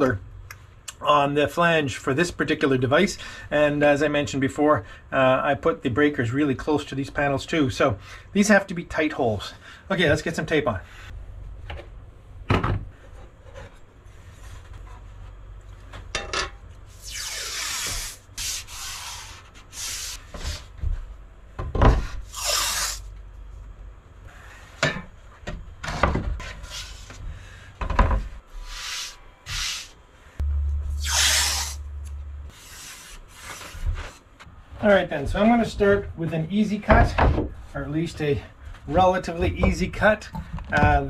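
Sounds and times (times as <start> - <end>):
masking tape pulled off roll: 16.9 - 20.2, 30.9 - 34.0.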